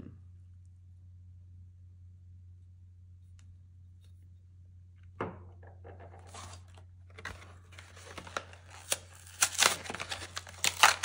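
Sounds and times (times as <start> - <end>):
packaging rustling and crinkling: 6.1 - 11.0.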